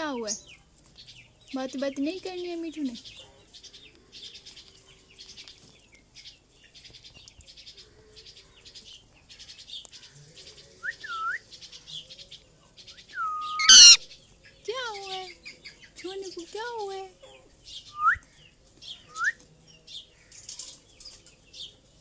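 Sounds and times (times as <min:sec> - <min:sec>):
parakeet whistles: 0:13.2 - 0:14.0
parakeet chattering: 0:13.6 - 0:14.0
parakeet harsh screech: 0:13.6 - 0:14.0.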